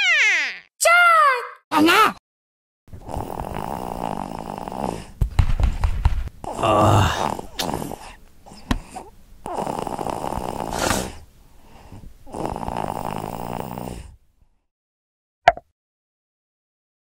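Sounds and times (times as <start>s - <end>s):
cartoon snoring: 3.0s - 5.2s, 6.4s - 8.2s, 8.9s - 11.2s, 12.3s - 14.2s.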